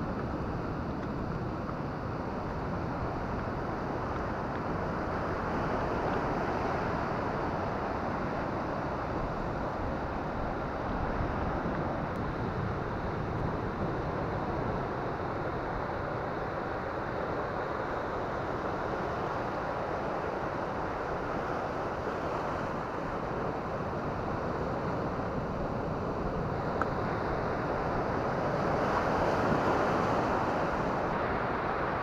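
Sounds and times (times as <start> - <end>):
surf washing over rocks: 0.1 - 32.0.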